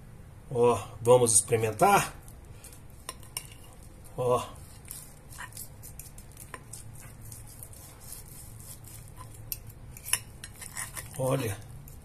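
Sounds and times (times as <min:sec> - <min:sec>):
cutlery scraping ceramic plate: 0:03.0 - 0:03.9, 0:08.9 - 0:11.6.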